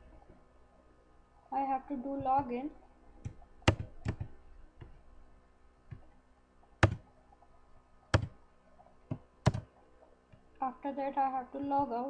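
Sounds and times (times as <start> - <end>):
keyboard keystrokes: 3.7 - 4.3, 6.8 - 7.0, 8.2 - 8.4, 9.4 - 9.7.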